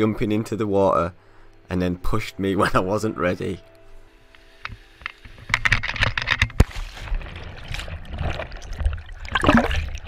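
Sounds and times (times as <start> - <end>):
water churning and gurgling: 5.8 - 10.0
person plunging into water: 6.6 - 10.0.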